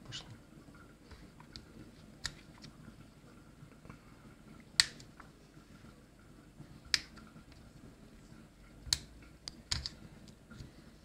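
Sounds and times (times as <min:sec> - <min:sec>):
plastic clicks: 0:08.9 - 0:10.7.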